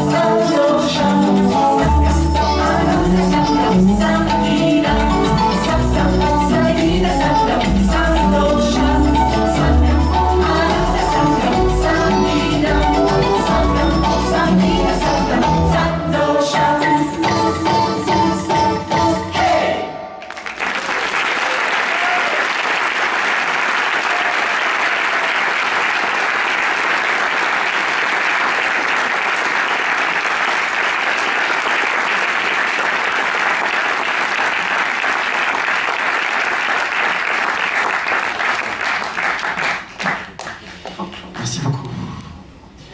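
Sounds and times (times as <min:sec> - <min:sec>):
audience applauding: 0:20.2 - 0:41.6.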